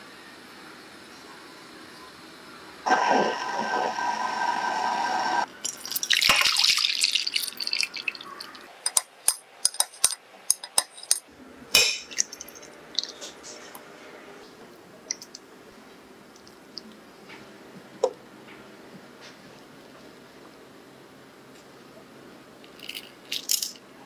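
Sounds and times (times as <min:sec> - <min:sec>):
liquid pouring into glass dish: 0:05.6 - 0:08.6.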